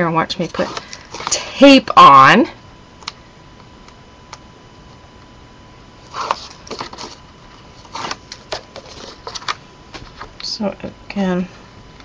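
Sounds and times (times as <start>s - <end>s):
paper rustling and crackling: 6.1s - 7.2s, 7.8s - 10.3s.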